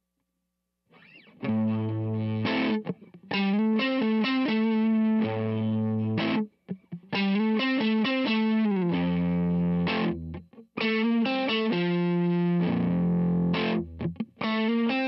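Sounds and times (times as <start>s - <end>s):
overdriven electric guitar: 0.9s - 15.0s.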